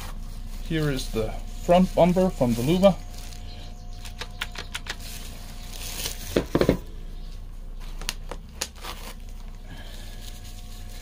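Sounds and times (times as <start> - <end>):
plastic rustling: 0.0 - 6.9, 7.8 - 11.0
sharp clicks: 4.0 - 5.1
deep thumps: 6.3 - 7.2.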